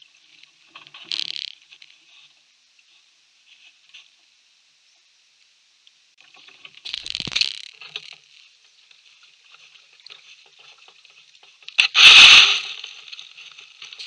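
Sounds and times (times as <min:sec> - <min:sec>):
kayak hull scraping bank: 0:06.4 - 0:14.0.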